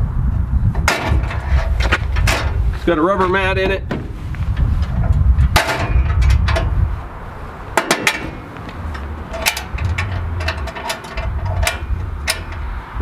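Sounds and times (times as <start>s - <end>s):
low rumble: 0.0s - 13.0s
metal tailgate clanking shut: 0.8s - 2.6s, 3.6s - 6.9s, 7.7s - 12.7s.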